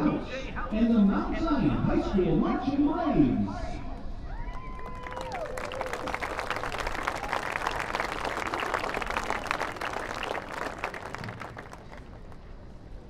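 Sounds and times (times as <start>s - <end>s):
audience applauding: 4.5s - 12.5s.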